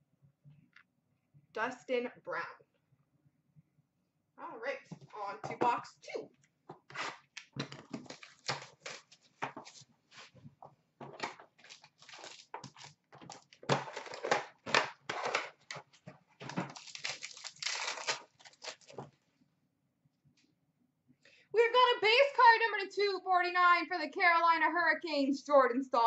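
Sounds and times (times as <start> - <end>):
plastic and foil crinkling: 7.7 - 10.3, 11.2 - 19.2.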